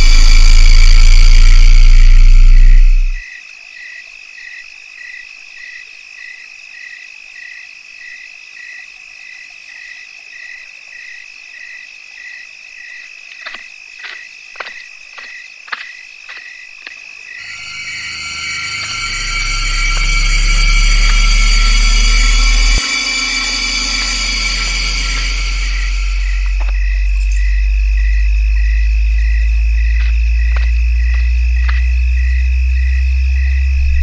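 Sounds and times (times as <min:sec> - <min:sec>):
low drone: 0:00.0 - 0:03.2, 0:17.4 - 0:34.0
insects and frogs trilling: 0:03.1 - 0:34.0.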